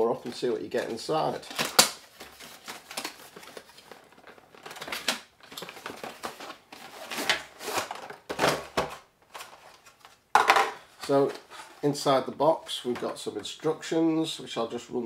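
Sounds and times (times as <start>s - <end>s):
plastic wrapping rustling: 0.1s - 13.3s.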